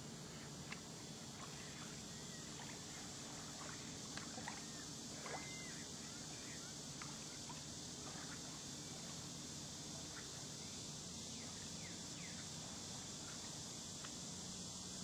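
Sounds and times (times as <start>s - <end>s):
small waves lapping at shore: 0.0s - 10.5s
faint chirps and ticks: 0.0s - 15.0s
faint steady hiss: 0.0s - 15.0s.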